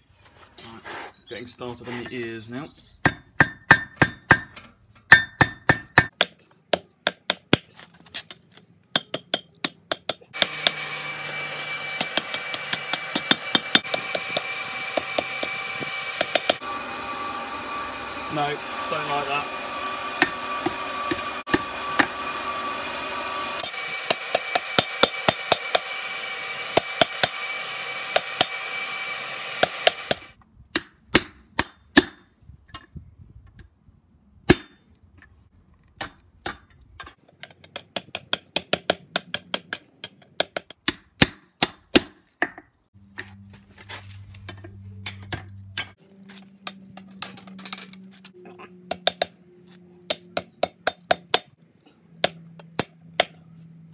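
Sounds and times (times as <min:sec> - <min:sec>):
hammer striking steel: 0:03.0 - 0:07.7, 0:08.9 - 0:16.6, 0:20.2 - 0:22.2, 0:24.0 - 0:25.9, 0:29.6 - 0:32.3, 0:34.5 - 0:34.9, 0:36.0 - 0:42.7, 0:48.9 - 0:49.4, 0:50.1 - 0:51.6.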